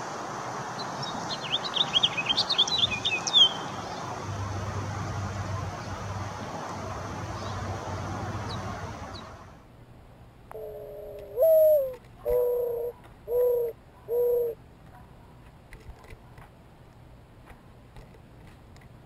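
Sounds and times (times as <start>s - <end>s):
background hiss: 0.0s - 14.8s
dove cooing: 10.5s - 14.6s.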